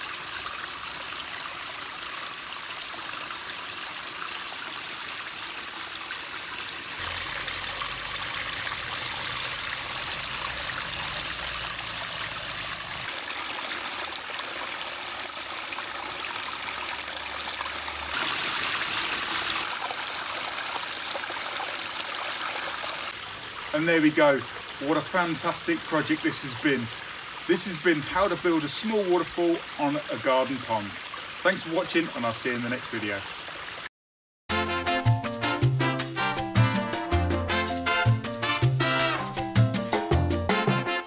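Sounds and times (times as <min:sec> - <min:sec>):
waterfall splashing into pond: 0:00.0 - 0:33.9.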